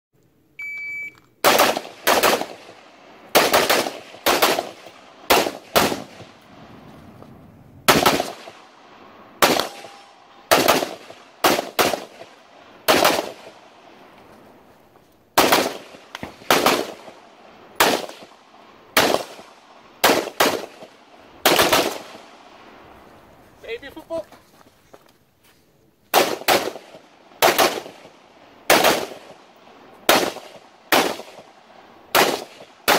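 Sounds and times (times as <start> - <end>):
shot timer beep: 0.6 - 1.2
carbine gunshots: 1.4 - 6.6, 7.8 - 13.9, 15.4 - 22.6, 26.1 - 32.9.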